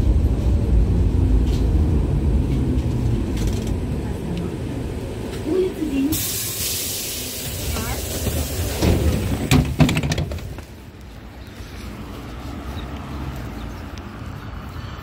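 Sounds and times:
low street rumble: 0:00.0 - 0:15.0
sharp knocks and clatter: 0:08.2 - 0:10.7.

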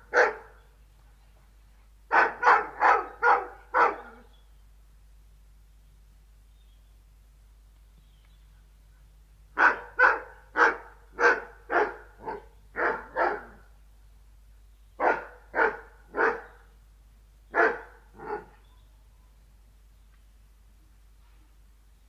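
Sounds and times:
dog barking deeply: 0:00.0 - 0:00.6, 0:02.1 - 0:04.3, 0:09.5 - 0:13.7, 0:15.0 - 0:16.7, 0:17.5 - 0:18.6.

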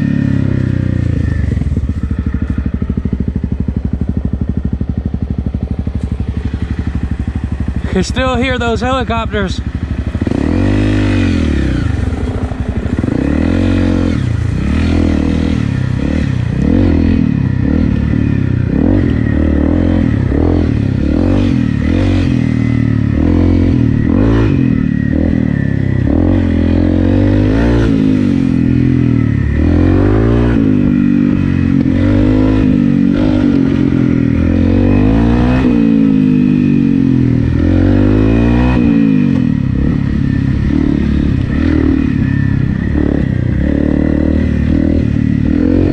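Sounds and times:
motorcycle engine revving: 0:00.0 - 0:45.9.

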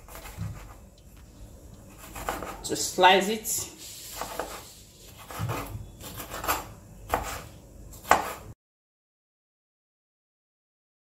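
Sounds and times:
knife striking cutting board: 0:04.2 - 0:08.4.

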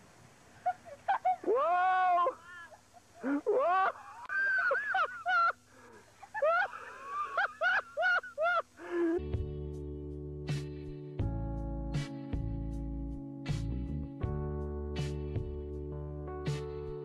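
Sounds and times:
music: 0:09.2 - 0:17.0.

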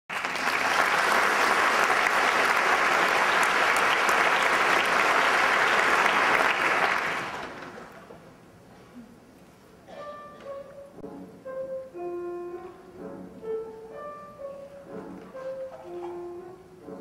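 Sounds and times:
audience applauding: 0:00.1 - 0:08.0.

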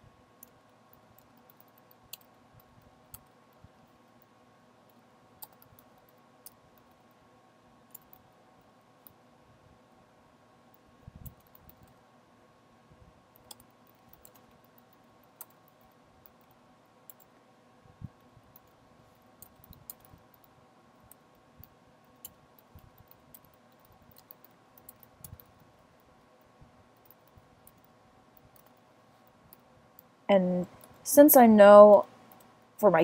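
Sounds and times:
faint steady hum: 0:00.0 - 0:33.0
typing on computer keyboard: 0:00.4 - 0:02.3, 0:05.4 - 0:07.0, 0:13.4 - 0:17.3, 0:19.4 - 0:26.1.

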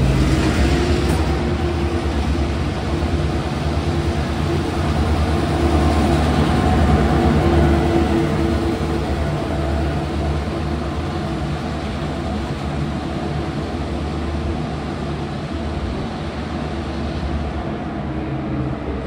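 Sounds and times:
locomotive engine drone: 0:00.0 - 0:19.0
train rolling noise: 0:00.0 - 0:19.0.

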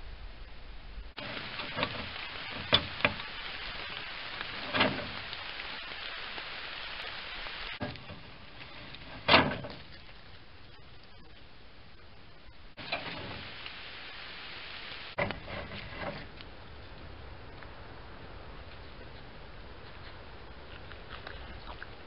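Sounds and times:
microphone hiss: 0:00.0 - 0:22.0
sharp clicks and knocks: 0:01.2 - 0:05.5, 0:15.2 - 0:16.5.

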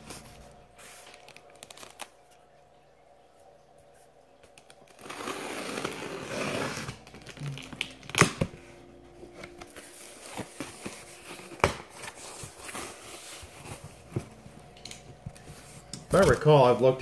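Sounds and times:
cardboard flaps rustling: 0:04.5 - 0:17.0.

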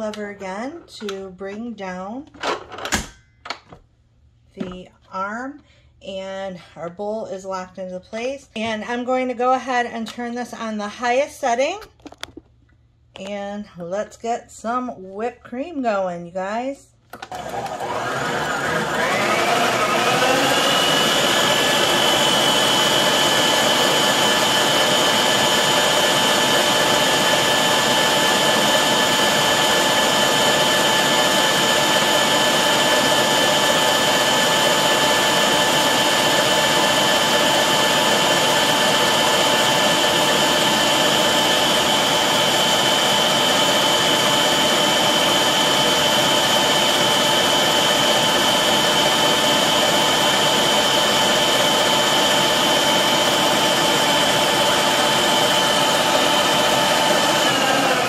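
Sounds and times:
stand mixer motor whining: 0:17.2 - 0:58.0.

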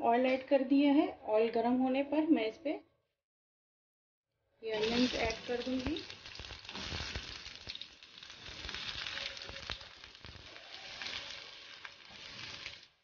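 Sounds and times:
onions sizzling in oil: 0:04.7 - 0:13.0
spatula stirring in pan: 0:04.8 - 0:13.0.

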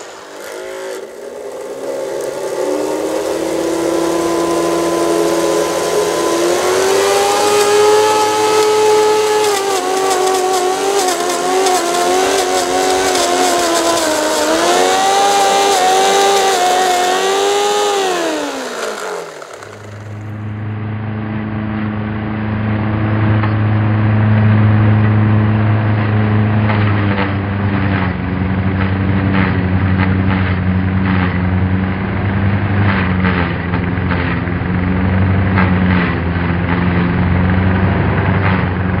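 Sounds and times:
small electric motors whining: 0:00.0 - 0:20.4
rapid crackle of clicks: 0:06.8 - 0:17.2, 0:17.9 - 0:20.2.

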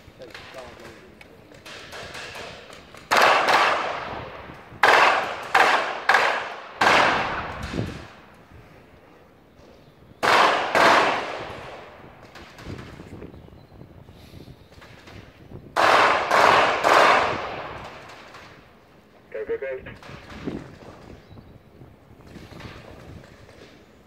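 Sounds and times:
loud sharp echoing bangs: 0:01.6 - 0:08.2, 0:10.2 - 0:13.0, 0:14.7 - 0:18.7.

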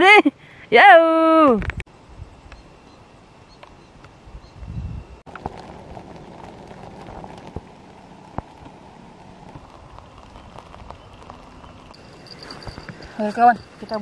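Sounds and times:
drizzle on tent fabric: 0:05.3 - 0:14.0.

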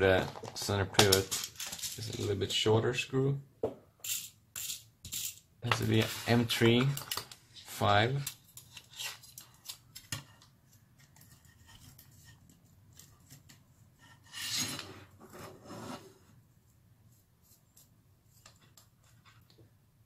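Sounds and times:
rubbing scrapes: 0:14.0 - 0:16.4.

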